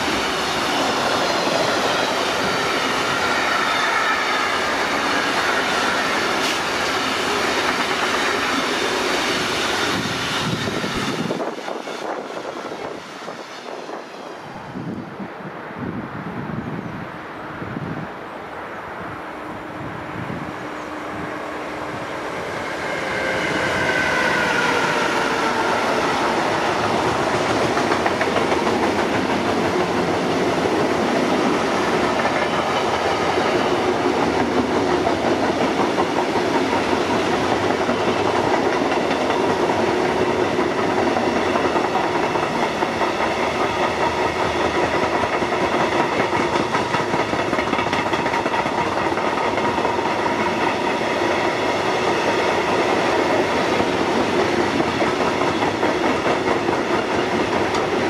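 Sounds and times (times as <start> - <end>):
wheels clacking on rails: 0.0 - 14.2, 20.6 - 58.0
locomotive passing with whine: 17.2 - 58.0.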